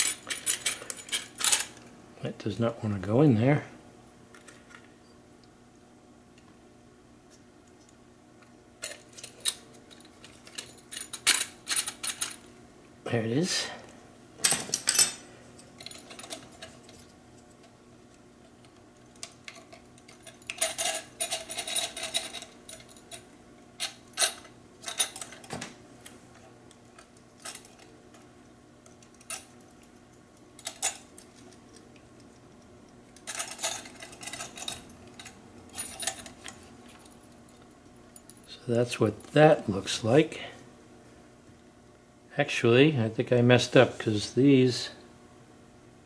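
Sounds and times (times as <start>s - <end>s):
metal parts clinking and rattling: 0.0s - 1.8s, 8.8s - 12.5s, 14.4s - 17.1s, 19.1s - 23.2s, 23.8s - 25.6s, 27.0s - 28.2s, 29.0s - 29.8s, 30.6s - 31.8s, 33.2s - 37.6s.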